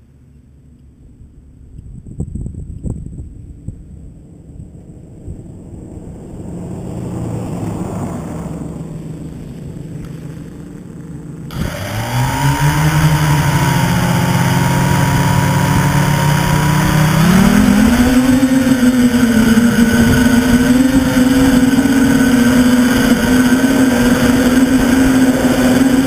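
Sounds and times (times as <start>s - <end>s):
drone propellers whining: 6.2s - 26.0s.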